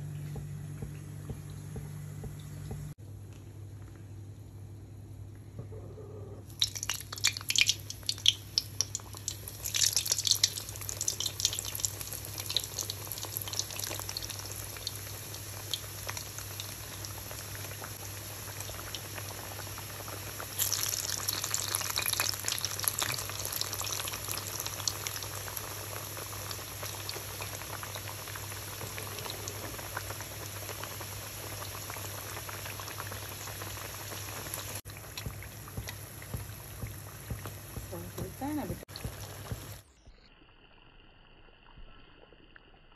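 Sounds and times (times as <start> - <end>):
food sizzling in hot oil: 6.5 - 39.8.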